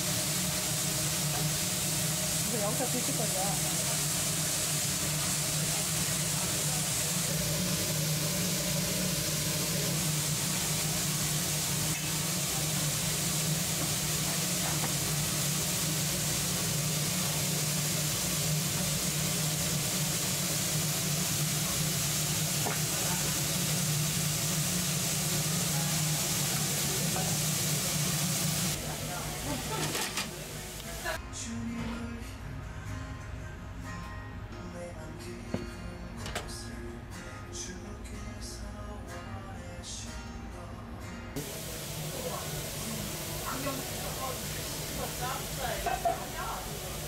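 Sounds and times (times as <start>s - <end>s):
food boiling and sizzling in a pan: 0.0s - 31.2s, 41.4s - 47.0s.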